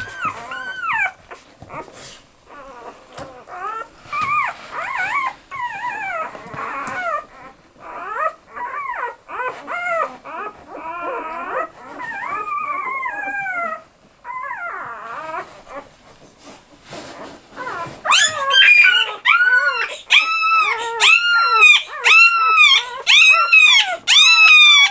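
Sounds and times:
puppies crying: 0.0 - 15.9, 17.6 - 24.9.

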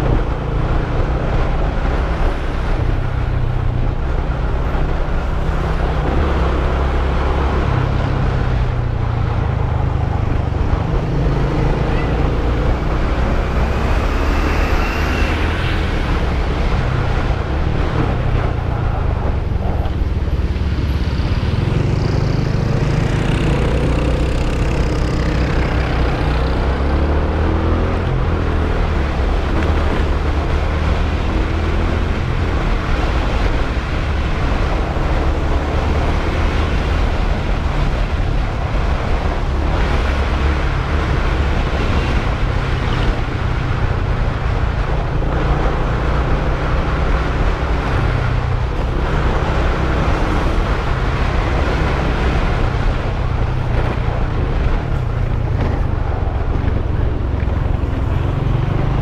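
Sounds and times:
surrounding traffic: 0.0 - 59.0
wind rush on microphone: 0.0 - 59.0
motorcycle engine running: 43.8 - 59.0.

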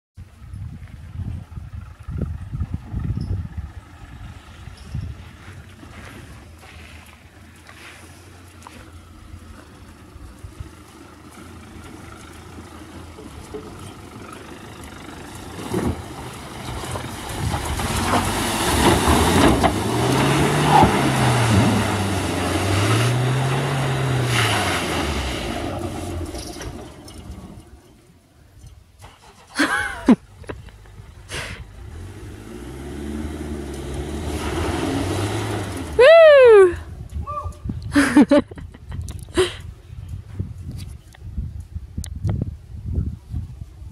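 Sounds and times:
car engine revving: 7.8 - 28.0, 30.7 - 36.4.

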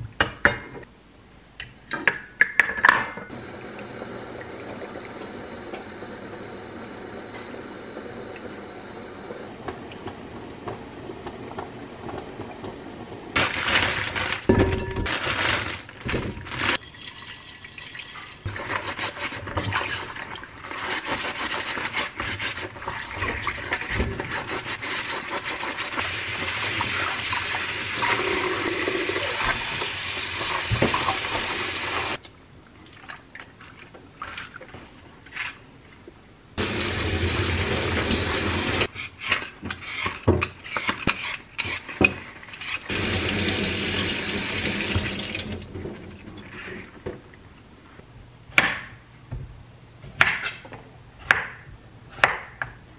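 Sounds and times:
tap water running into sink: 36.6 - 38.9, 42.9 - 45.7.

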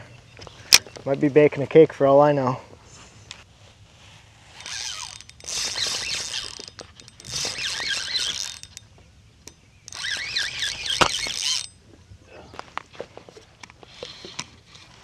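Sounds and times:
fishing reel whirring: 4.5 - 8.8, 9.9 - 11.8, 13.8 - 14.8.

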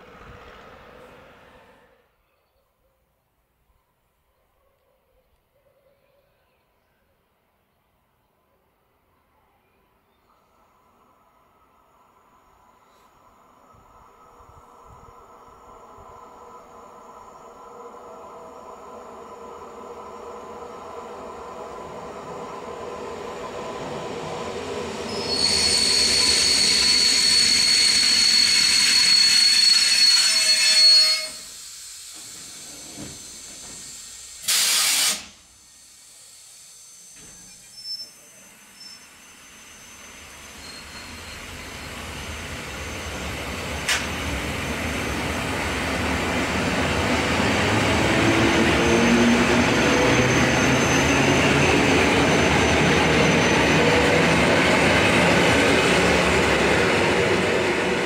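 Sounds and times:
train pulling away: 0.0 - 2.0, 10.5 - 58.0
high-pitched brake squeal: 25.1 - 31.6, 36.9 - 44.1, 48.8 - 54.2
short loud hiss: 30.8 - 41.1.

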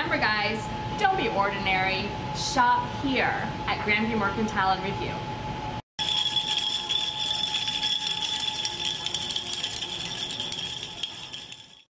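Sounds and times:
jingle bells shaken: 6.0 - 11.9.

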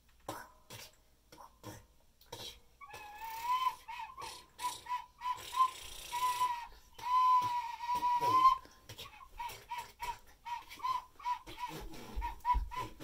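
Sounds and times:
toy recorder tooting: 2.8 - 8.6
hiss: 4.2 - 6.6.

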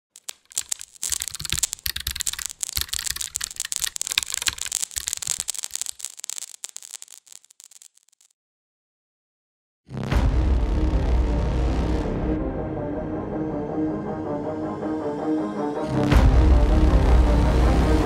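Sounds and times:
dense static crackling: 0.0 - 8.3.

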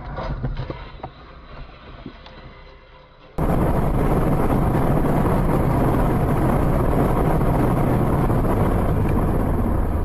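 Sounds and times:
car driving rumble: 3.4 - 10.0.

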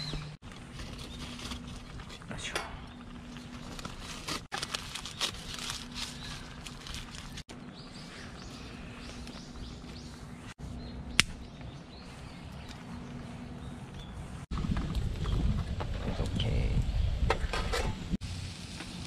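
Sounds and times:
aluminium foil crinkling: 0.4 - 2.4, 3.2 - 7.5
sharp click: 11.2 - 11.4.

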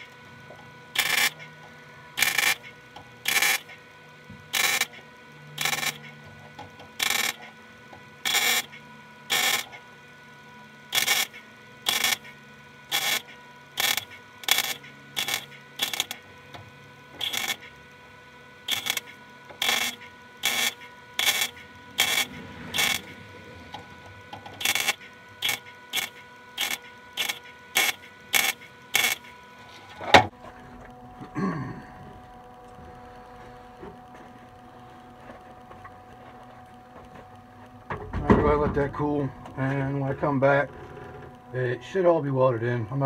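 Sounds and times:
welding arc crackling: 0.0 - 10.1, 10.9 - 31.2.

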